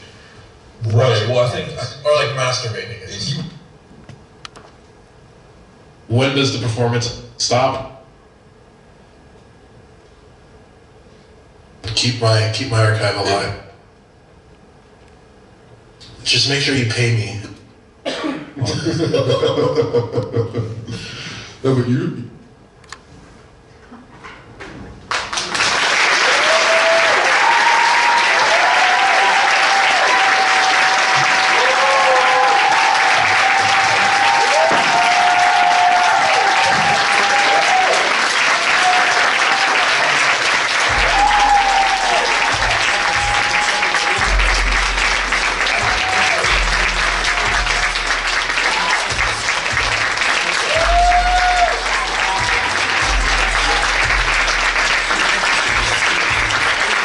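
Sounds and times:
audience applause: 25.1 - 57.0
people cheering and whooping: 26.1 - 57.0
music with deep bass: 40.9 - 57.0.

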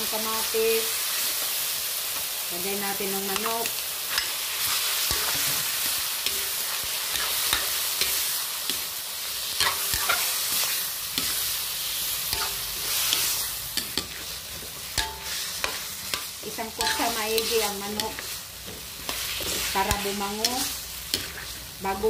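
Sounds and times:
chicken sizzling in hot oil: 0.0 - 22.0
metal spatula scraping a pan: 4.1 - 8.8, 9.5 - 22.0.

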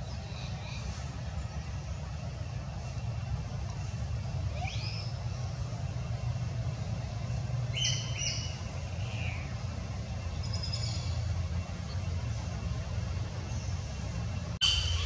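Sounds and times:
steady low rumble: 0.0 - 15.0
bird chirps: 7.7 - 9.6, 14.6 - 15.0.

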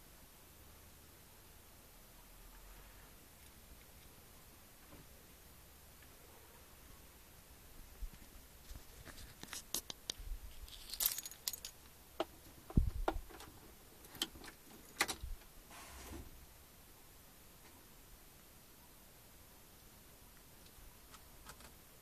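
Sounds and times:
keys jangling: 10.7 - 11.8.

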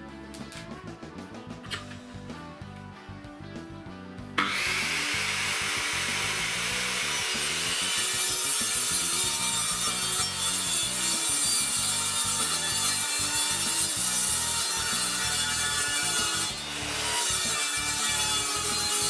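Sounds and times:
circular saw cutting wood: 4.4 - 19.0.

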